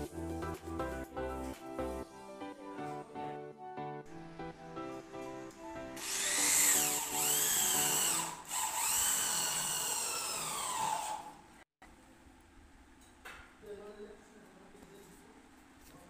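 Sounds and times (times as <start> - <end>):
background music: 0.0 - 8.5
electric drill whining: 6.0 - 11.5.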